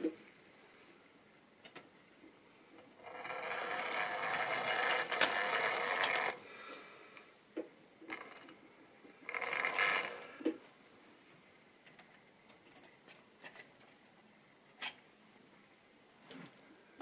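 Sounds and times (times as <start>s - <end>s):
model train motor whirring: 3.0s - 6.4s.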